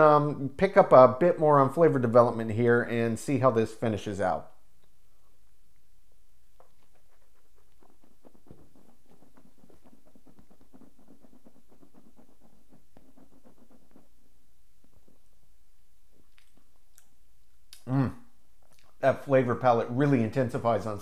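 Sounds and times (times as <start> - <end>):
wet mouth clicks and smacks: 16.1 - 17.9, 18.6 - 19.0.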